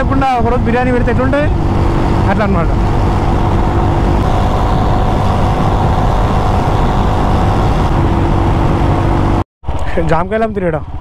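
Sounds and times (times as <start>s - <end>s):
motorcycle engine cruising: 0.0s - 9.4s
wind and road noise: 0.0s - 11.0s.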